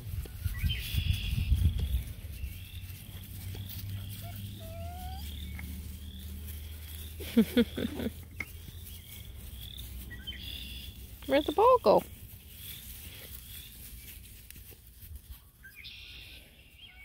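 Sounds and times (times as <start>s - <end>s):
puppy yipping and whining: 4.0s - 5.5s.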